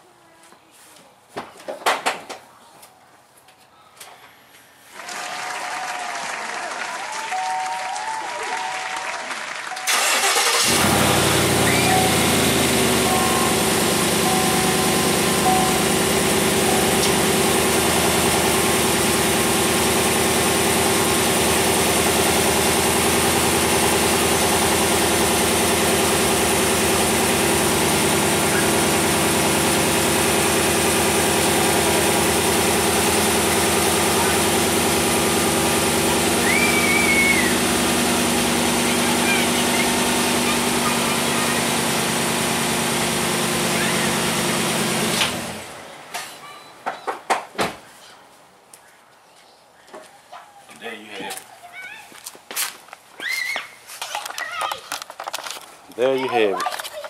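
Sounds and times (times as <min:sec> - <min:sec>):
pickup truck engine starting and idling: 0:09.8 - 0:45.9.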